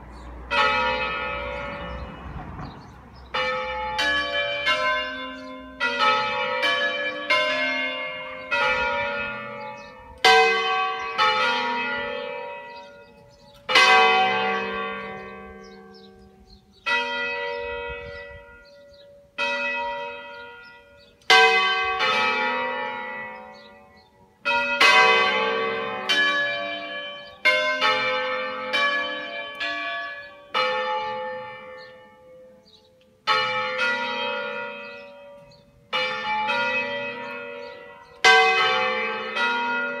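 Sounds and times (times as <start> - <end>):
church bells ringing: 0.0 - 40.0.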